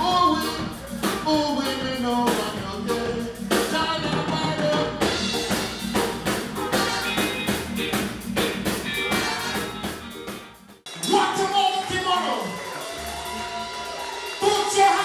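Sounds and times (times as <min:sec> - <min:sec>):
person singing: 0:00.0 - 0:05.2
drum kit beat: 0:00.0 - 0:15.0.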